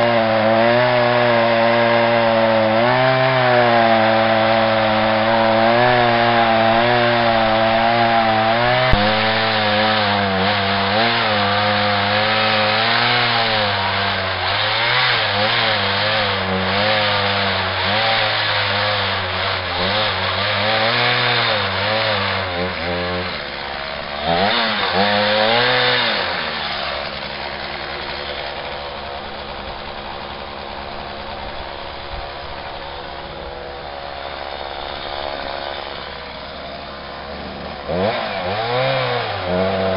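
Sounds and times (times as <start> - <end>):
chainsaw cutting wood: 0.0 - 39.9
chainsaw idling: 0.0 - 39.9.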